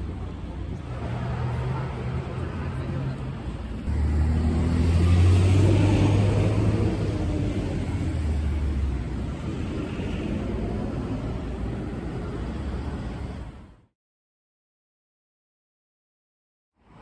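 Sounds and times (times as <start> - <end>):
road vehicle engine rumble: 0.0 - 13.9.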